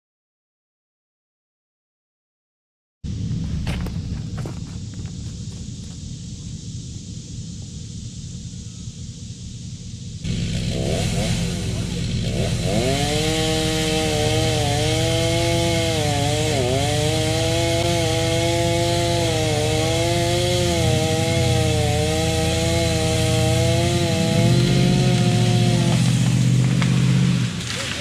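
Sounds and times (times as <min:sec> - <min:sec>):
chainsaw cutting wood: 0:10.2 - 0:28.0.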